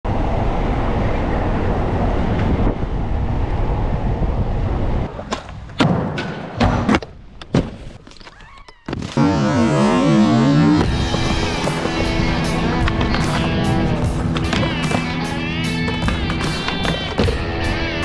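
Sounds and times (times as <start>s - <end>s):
skateboard clacks and thuds: 5.1s - 8.0s, 10.9s - 17.5s
car tyres rumbling on cobblestones: 9.1s - 17.9s.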